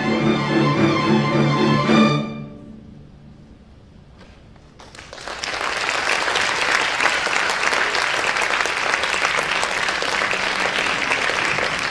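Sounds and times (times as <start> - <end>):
audience applause: 4.8 - 11.9.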